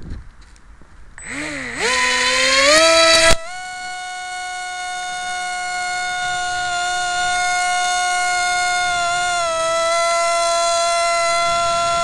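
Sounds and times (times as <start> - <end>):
electric motor propeller whine: 1.2 - 12.0.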